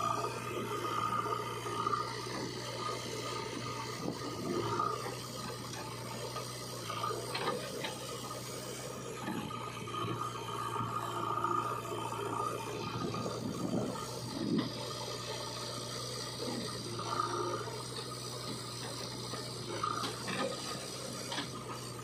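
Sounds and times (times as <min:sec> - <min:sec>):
diesel engines running: 0:00.0 - 0:22.0.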